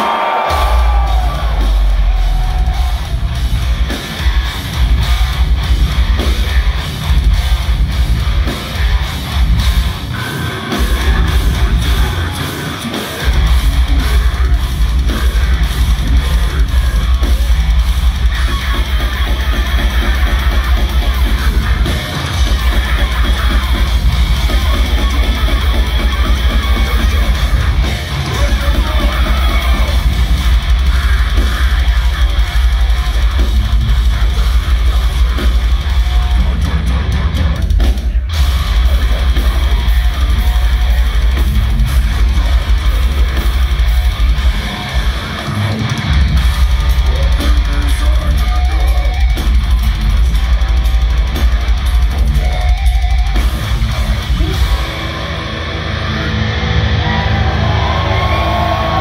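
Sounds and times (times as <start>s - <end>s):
heavy distorted guitars: 0.0s - 59.0s.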